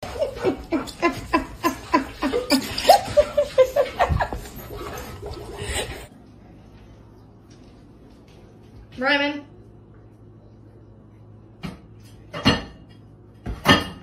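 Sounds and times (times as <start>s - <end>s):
person laughing hard: 0.0s - 4.5s.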